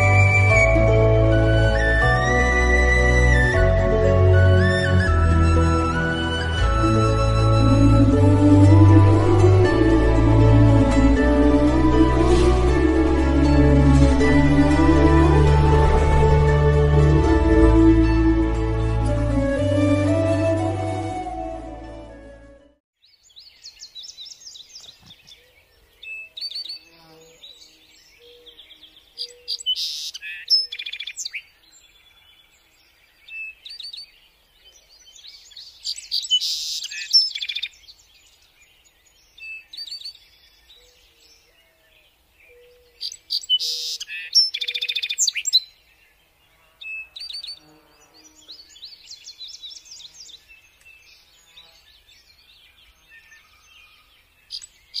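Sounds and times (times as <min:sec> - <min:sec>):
low hooting notes: 0:00.0 - 0:22.8
birds chirping and trilling: 0:23.0 - 0:55.0.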